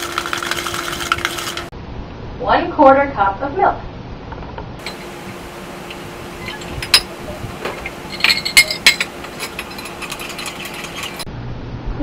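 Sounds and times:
metal spoon clinking on glass: 6.4s - 7.1s, 8.1s - 11.2s.

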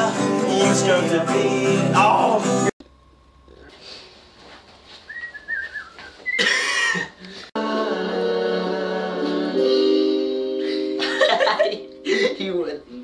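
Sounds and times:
held sung chord: 7.6s - 12.3s.

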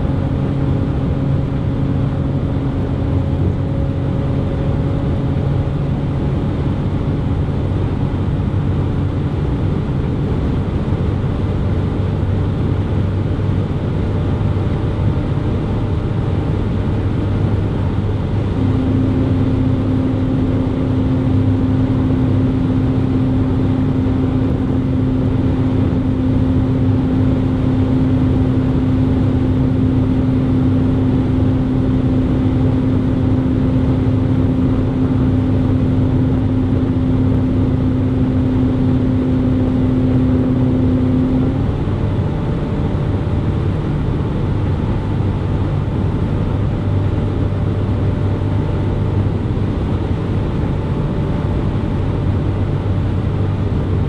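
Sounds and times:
car engine drone: 0.0s - 54.0s.

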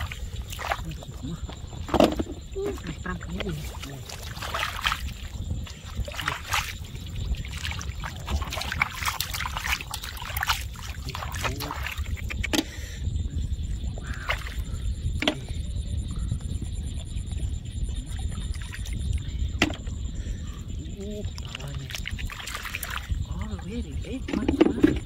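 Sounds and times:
hands sloshing in wet mud: 0.0s - 12.6s, 14.0s - 14.8s, 21.2s - 25.0s
low rumble: 0.0s - 25.0s.

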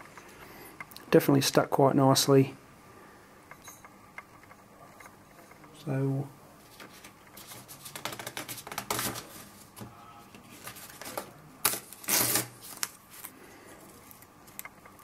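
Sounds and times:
paper tissue rustling and crinkling: 6.6s - 14.6s.

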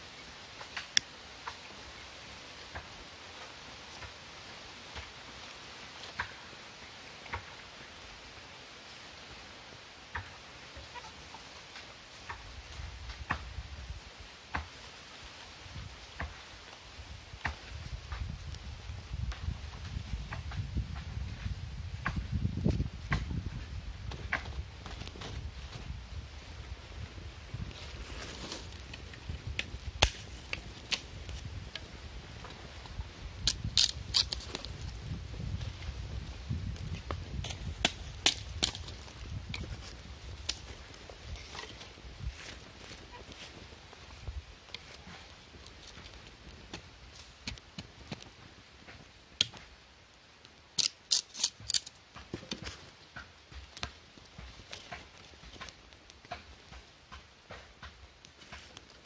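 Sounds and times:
leaves and twigs fire crackling: 0.0s - 59.0s
sharp snaps of fire: 0.5s - 1.7s, 27.0s - 59.0s
loud wood snaps: 28.6s - 31.9s, 33.4s - 34.8s, 36.8s - 39.7s, 50.8s - 58.9s.

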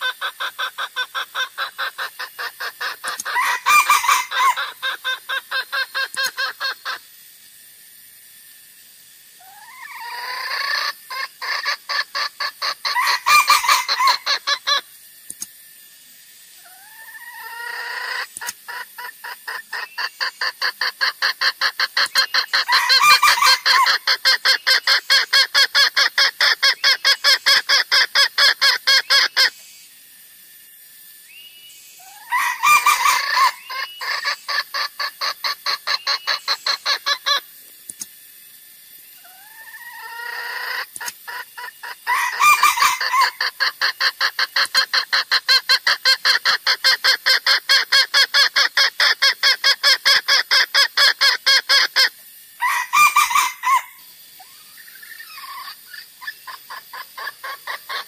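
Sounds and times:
junglefowl calls: 0.0s - 7.1s, 9.4s - 14.9s, 16.6s - 29.6s, 32.0s - 37.6s, 39.2s - 58.0s.

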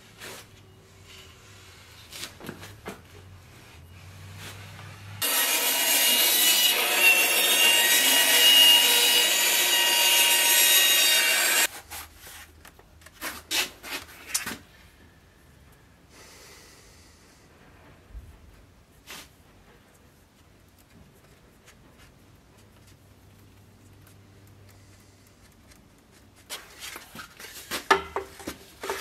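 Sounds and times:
band saw cutting wood: 5.2s - 11.7s.

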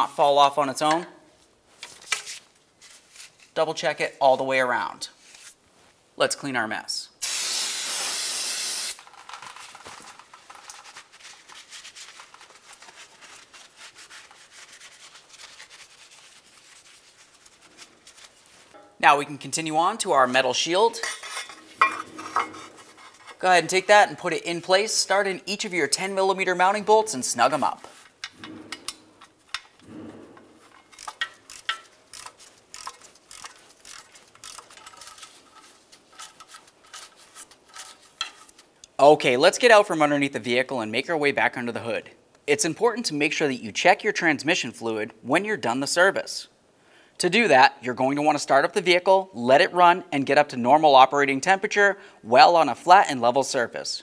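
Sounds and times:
aerosol spray can hissing: 7.2s - 9.0s
rag wiping metal: 20.2s - 29.4s
socket ratchet clicking: 30.8s - 34.8s.

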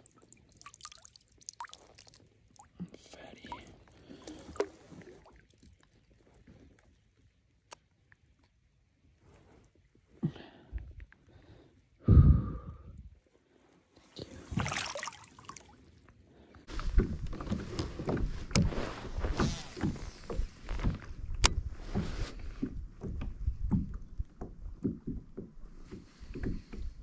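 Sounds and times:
water splashing and swirling: 0.0s - 10.0s, 13.9s - 17.0s
water sloshing against hull: 0.0s - 10.2s, 13.1s - 27.0s.

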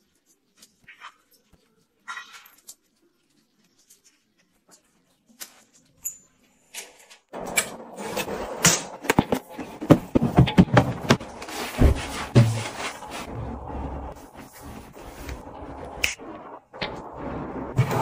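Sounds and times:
plastic drawers clacking and thudding: 9.1s - 12.7s.

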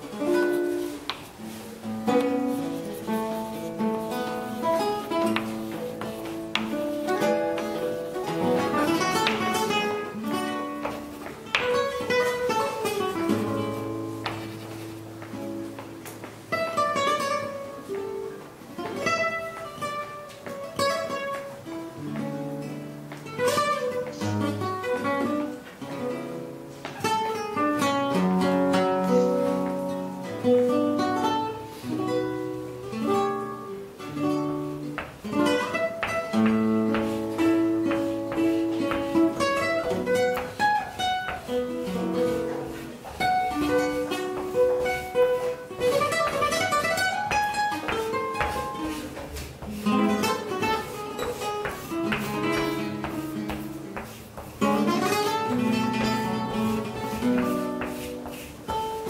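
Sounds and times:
acoustic guitar playing: 0.0s - 59.0s.

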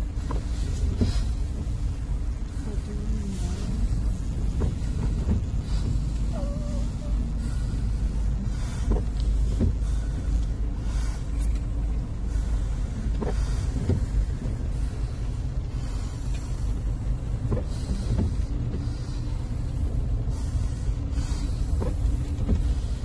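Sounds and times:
car engine and road noise: 0.0s - 23.0s.

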